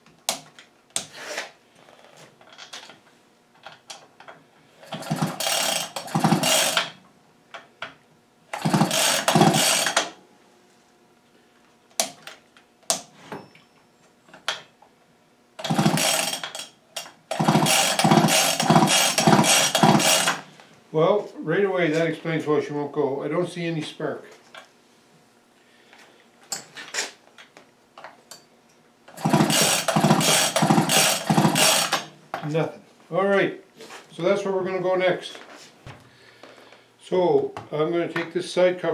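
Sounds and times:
recoil starter rope whirring: 0:04.8 - 0:07.0, 0:08.5 - 0:10.2, 0:15.6 - 0:16.7, 0:17.3 - 0:20.5, 0:29.1 - 0:32.1
engine turning over without firing: 0:04.9 - 0:07.0, 0:08.5 - 0:10.2, 0:15.6 - 0:16.7, 0:17.3 - 0:20.4, 0:29.1 - 0:32.1.

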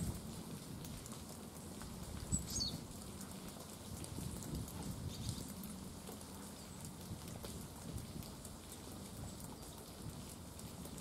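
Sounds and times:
songbird high call: 0:02.3 - 0:02.8.

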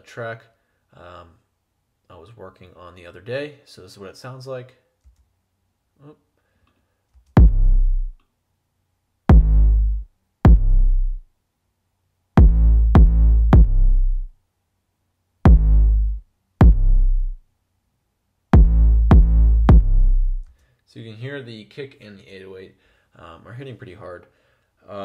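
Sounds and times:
deep bass notes: 0:07.4 - 0:08.2, 0:09.3 - 0:11.2, 0:12.4 - 0:14.3, 0:15.5 - 0:17.4, 0:18.6 - 0:20.5
kick drum: 0:07.4 - 0:08.2, 0:09.3 - 0:11.2, 0:12.4 - 0:14.3, 0:15.5 - 0:17.4, 0:18.6 - 0:20.4.

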